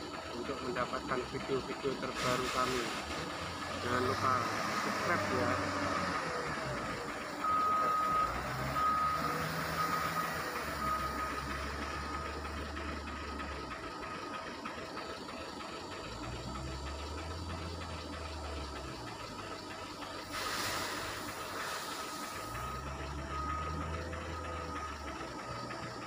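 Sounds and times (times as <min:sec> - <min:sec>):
diesel engine revving: 0:00.0 - 0:26.0
reversing alarm beeping: 0:03.8 - 0:13.8, 0:21.0 - 0:26.0.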